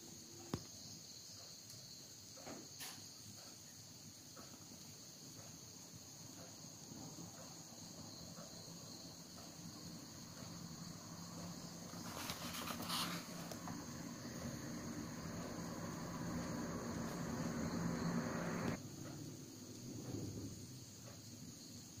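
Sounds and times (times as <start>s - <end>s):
crickets chirring: 0.0s - 22.0s
paper rustling: 12.0s - 13.8s.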